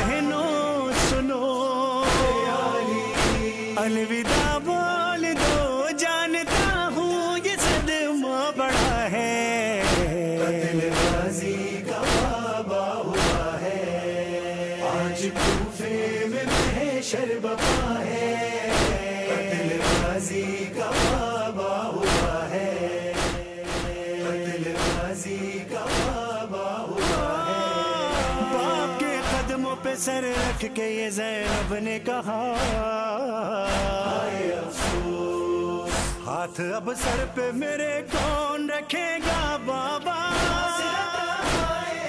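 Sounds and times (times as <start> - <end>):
backing chorus: 0.0 - 5.8, 8.7 - 30.7, 33.6 - 37.5
man chanting lament: 0.0 - 42.0
steady percussive beat: 0.9 - 1.3, 2.0 - 2.5, 3.1 - 3.6, 4.3 - 4.6, 6.5 - 6.9, 23.2 - 24.0, 28.1 - 29.6, 31.4 - 31.8, 34.8 - 35.2.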